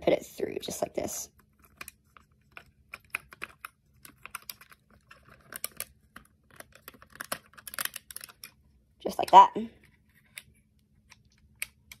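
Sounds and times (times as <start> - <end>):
plastic bricks clicking: 1.7 - 8.6.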